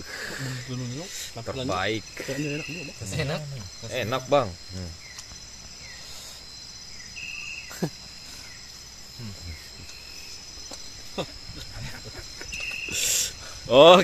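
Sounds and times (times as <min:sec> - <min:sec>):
crickets trilling: 0:00.0 - 0:14.0.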